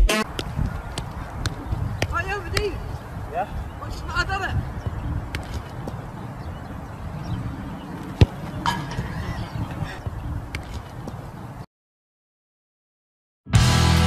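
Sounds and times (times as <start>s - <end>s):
wind rumble on microphone: 0.2s - 11.6s
football being kicked: 0.3s - 2.8s, 4.8s - 6.1s, 8.0s - 9.0s.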